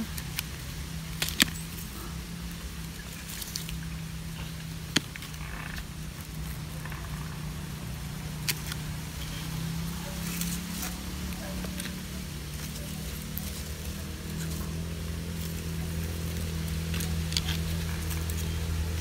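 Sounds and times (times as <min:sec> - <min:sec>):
steady low hum: 0:00.0 - 0:19.0
pruning shears clicking: 0:00.1 - 0:02.0, 0:08.3 - 0:19.0.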